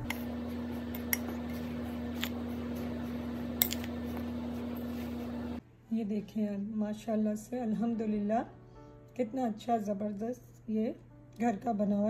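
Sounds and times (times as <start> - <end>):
low hum: 0.0 - 5.6
spoon scraping in glass bowl: 0.2 - 5.4.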